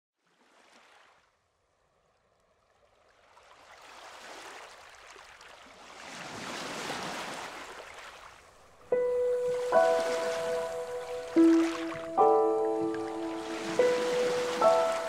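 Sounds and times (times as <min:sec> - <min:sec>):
ocean waves washing in: 0:03.6 - 0:15.0.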